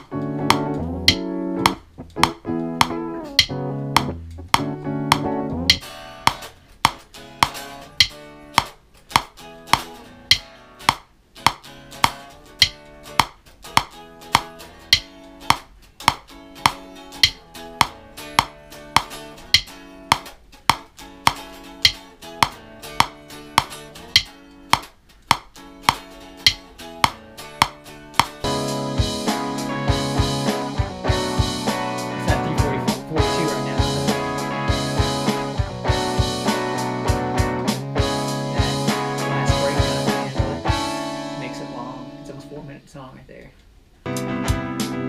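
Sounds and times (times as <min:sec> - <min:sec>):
bass line: 0:00.0 - 0:05.8, 0:28.4 - 0:42.5
electric guitar playing: 0:00.0 - 0:08.7, 0:09.4 - 0:24.8, 0:25.6 - 0:42.8, 0:44.0 - 0:45.0
metronome click: 0:00.0 - 0:28.4.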